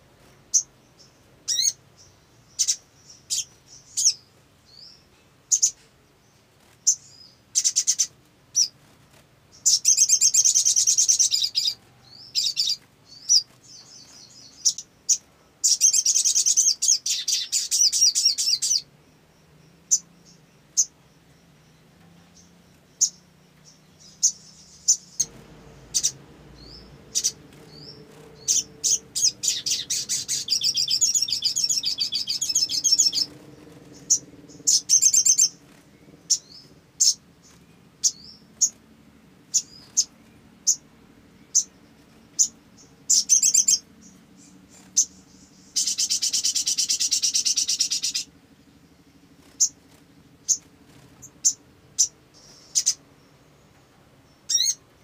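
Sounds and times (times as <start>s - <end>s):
bird chirping: 0.0s - 55.0s
bird buzzing trills: 12.4s - 38.8s, 39.4s - 53.5s.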